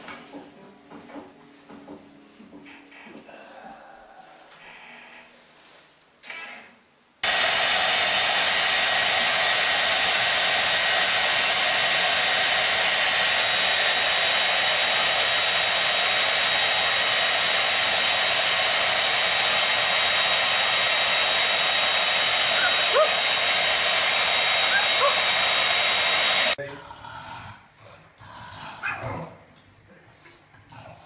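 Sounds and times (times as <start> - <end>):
hair dryer running: 7.2 - 26.6.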